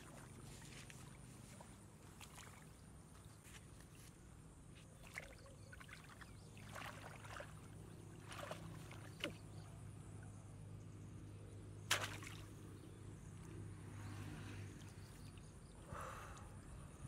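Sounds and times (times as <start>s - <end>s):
hands splashing in muddy water: 5.0s - 9.5s, 11.9s - 12.6s.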